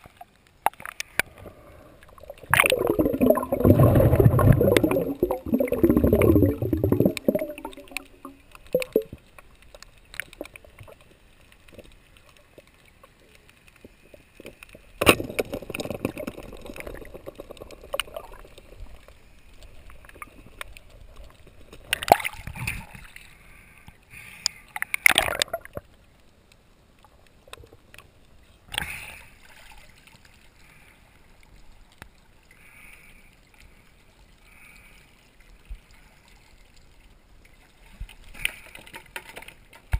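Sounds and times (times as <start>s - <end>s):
water sloshing and gurgling: 0.0s - 23.8s.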